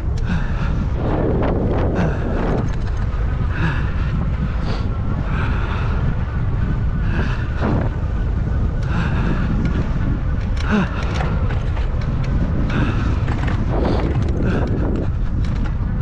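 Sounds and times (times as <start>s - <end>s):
tyre noise on dirt trail: 0.0s - 16.0s
wind buffeting microphone: 0.0s - 16.0s
sharp rattles from bumps: 1.4s - 3.6s, 9.6s - 16.0s.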